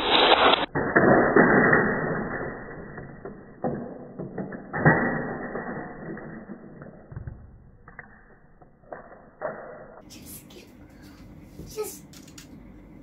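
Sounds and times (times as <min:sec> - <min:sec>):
plastic toy track clicks: 0:12.1 - 0:12.5.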